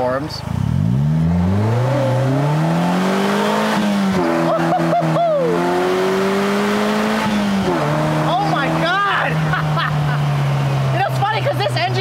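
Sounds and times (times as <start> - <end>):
car engine accelerating hard: 0.0 - 12.0.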